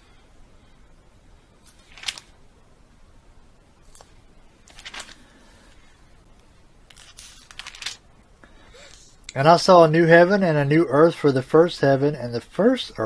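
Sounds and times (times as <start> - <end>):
book pages rustling: 1.6 - 2.3, 3.8 - 5.9, 6.9 - 8.0.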